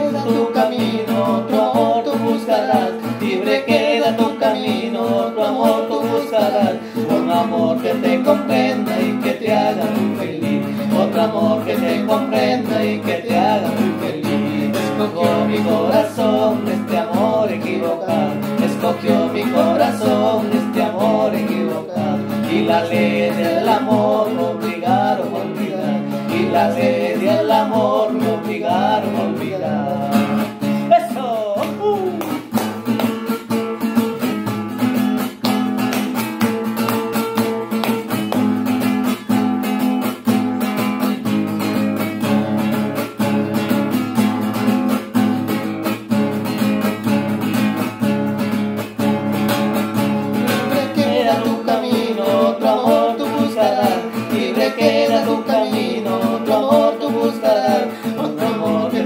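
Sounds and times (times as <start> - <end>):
person singing: 0.0 - 34.5, 50.2 - 59.0
acoustic guitar strumming: 0.0 - 59.0.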